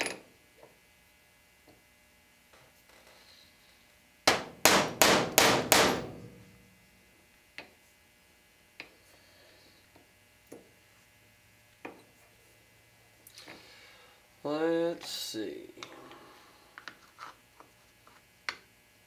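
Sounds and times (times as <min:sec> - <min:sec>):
hammer tapping metal punch: 0:04.3 - 0:06.5.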